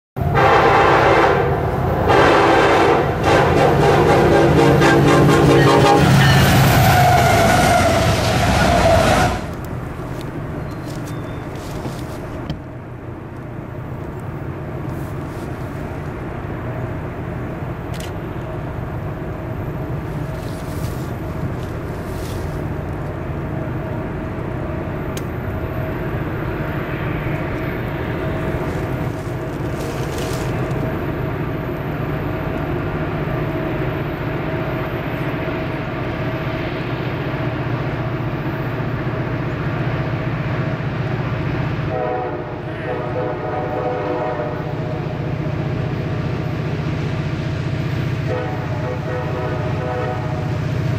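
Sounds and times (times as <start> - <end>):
diesel locomotive engine drone: 0.2 - 50.9.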